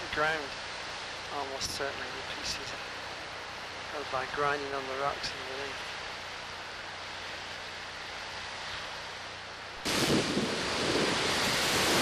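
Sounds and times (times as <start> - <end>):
hiss of sea and air: 0.0 - 12.0
breaking waves and bow spray: 9.8 - 12.0
wind buffeting microphone: 9.8 - 12.0.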